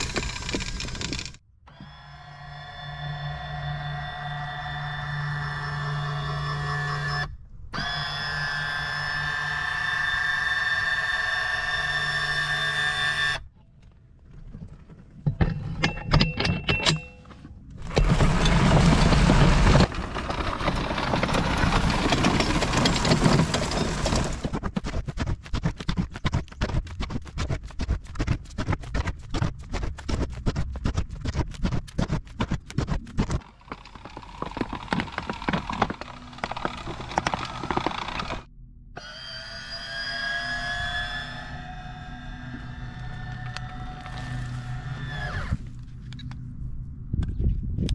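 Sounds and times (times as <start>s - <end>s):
fast rattling clicks: 0.0s - 1.4s, 31.5s - 38.5s
electric motor whine: 0.0s - 13.4s, 33.4s - 46.4s
rough scraping: 17.3s - 38.5s, 42.5s - 46.1s.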